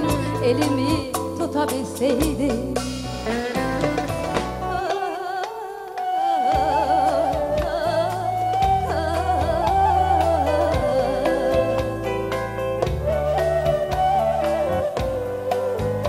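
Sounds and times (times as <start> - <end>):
woman singing: 0.0 - 3.9, 4.7 - 12.4
band playing: 0.0 - 16.0.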